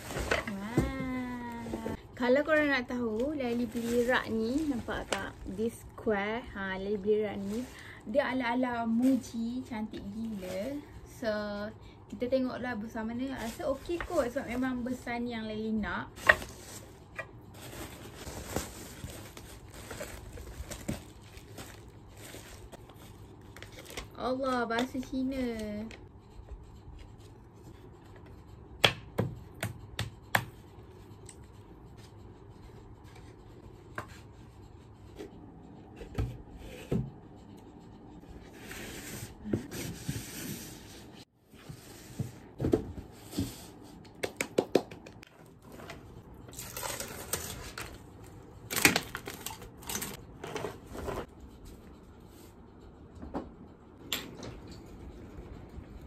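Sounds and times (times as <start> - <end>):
rustling: 16.2 - 24.0.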